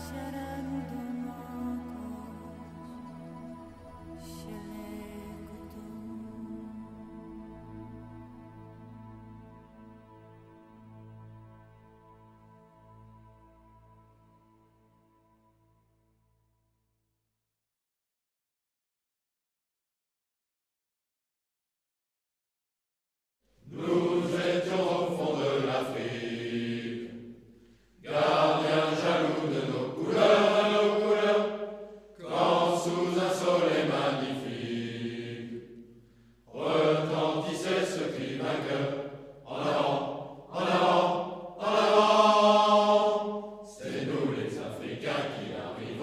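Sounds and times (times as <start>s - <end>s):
voices chanting: 23.6s - 27.4s, 28.0s - 35.8s, 36.5s - 46.0s.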